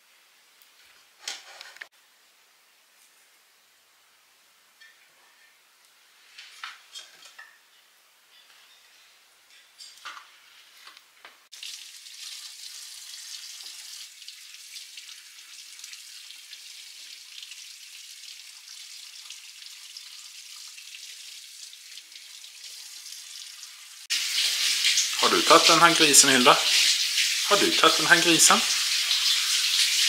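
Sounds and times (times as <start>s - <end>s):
steady even hiss: 24.1s - 30.0s.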